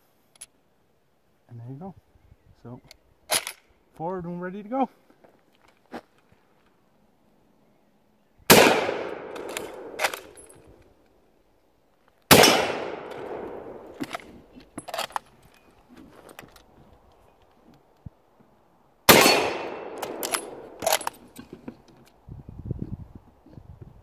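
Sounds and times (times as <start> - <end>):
rifle shots: 8.5 - 10.4, 12.3 - 14.2, 19.1 - 21.1
rifle bolt clacking: 8.6 - 10.6, 19.1 - 21.5.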